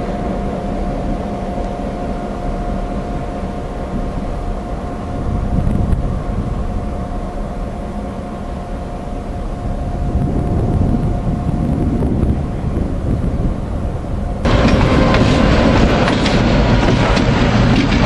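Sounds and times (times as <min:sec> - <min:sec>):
constant whine: 0:00.0 - 0:18.0
diesel locomotive engine rumbling: 0:00.0 - 0:18.0.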